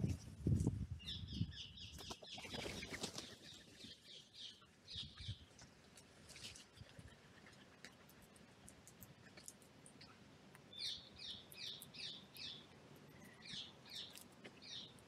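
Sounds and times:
crow wingbeats: 2.0s - 4.0s.

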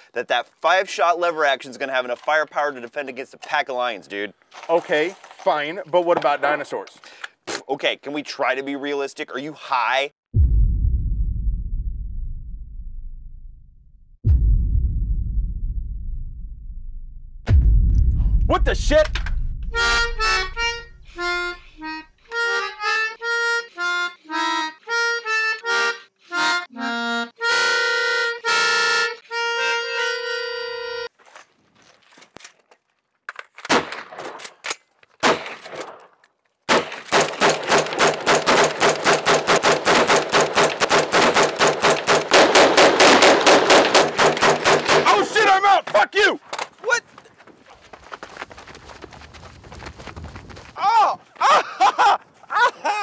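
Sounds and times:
reedy instrument melody: 19.6s - 31.1s
rapid rifle gunfire: 36.7s - 45.2s.

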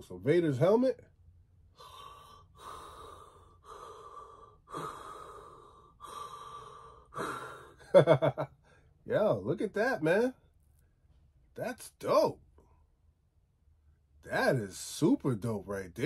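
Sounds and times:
man breathing hoarsely: 1.7s - 8.0s.

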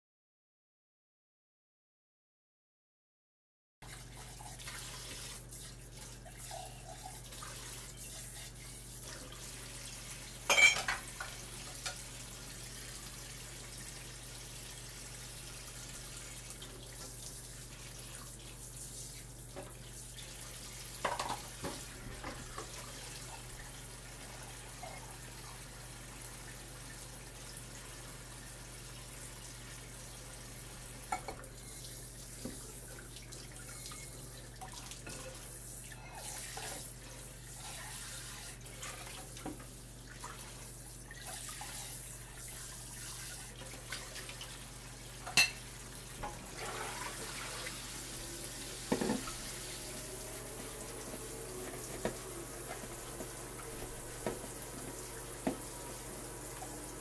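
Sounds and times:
dishes clinking and knocking: 10.5s - 11.3s, 21.0s - 22.4s, 45.3s - 45.6s, 48.9s - 49.3s
tap running into steel sink: 48.9s - 49.4s, 51.2s - 55.7s.

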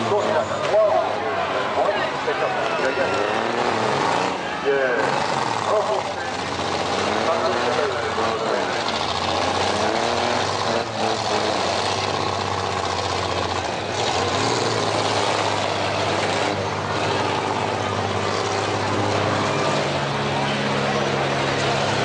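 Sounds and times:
truck engines droning: 0.0s - 22.0s.

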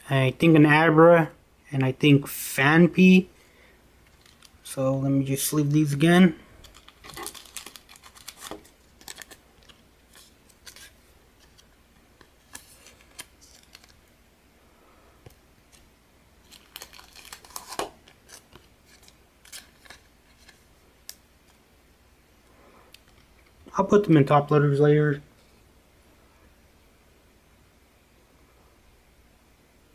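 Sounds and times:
cards sliding into plastic sleeves: 6.6s - 14.1s, 15.2s - 21.6s.

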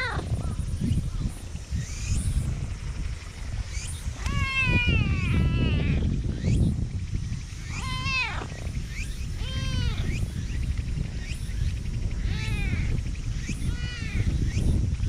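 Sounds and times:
cat meowing: 4.2s - 6.0s, 7.8s - 8.5s, 9.4s - 10.0s.

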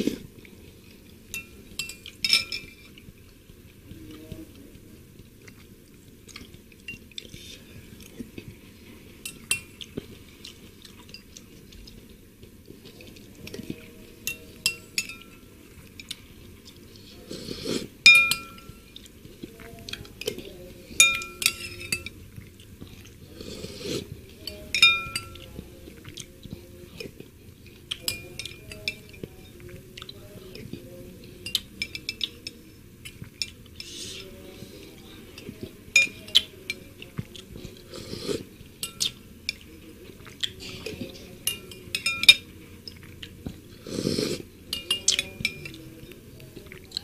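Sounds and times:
spoon clinking on ceramic bowl: 1.3s - 2.9s, 9.2s - 9.8s, 14.3s - 16.1s, 18.1s - 19.0s, 21.0s - 22.2s, 24.5s - 25.6s, 28.0s - 29.5s, 31.4s - 32.6s, 35.4s - 36.9s, 38.8s - 39.6s, 41.0s - 42.5s, 44.7s - 46.1s
sipping and slurping: 16.8s - 18.0s, 22.5s - 24.2s, 37.4s - 39.1s, 43.0s - 44.6s.

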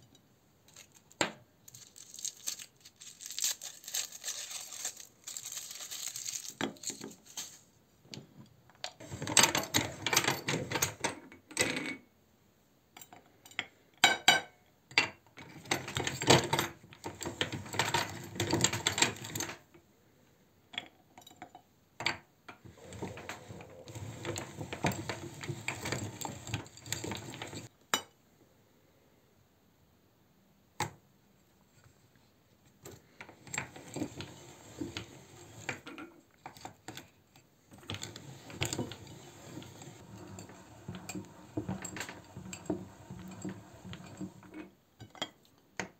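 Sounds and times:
foil wrappers crinkling: 0.8s - 7.7s.

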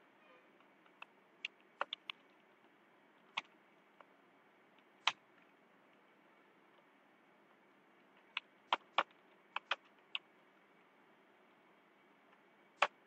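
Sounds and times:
faint steady hiss: 0.0s - 13.0s
computer keyboard keystrokes: 1.4s - 2.2s, 8.4s - 9.8s.

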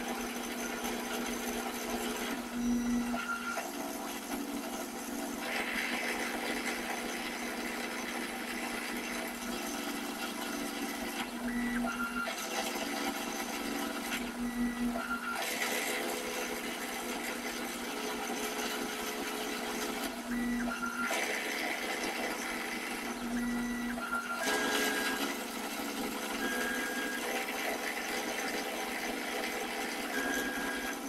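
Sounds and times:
rough machine noise: 4.9s - 11.2s.

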